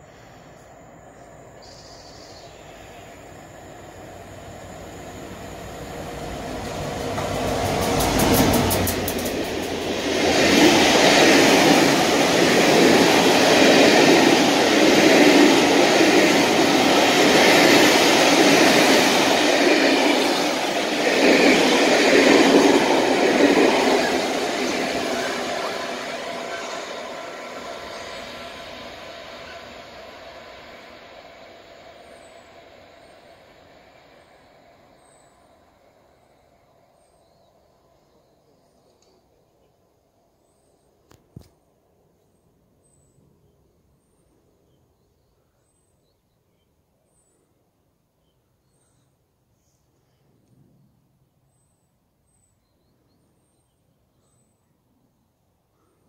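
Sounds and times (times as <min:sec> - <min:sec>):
diesel locomotive passing: 0:00.0 - 0:38.5
train wheels rushing on rails: 0:01.6 - 0:36.4.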